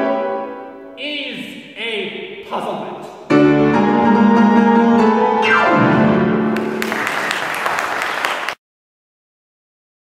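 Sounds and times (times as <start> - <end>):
audience applauding: 6.5 - 8.6.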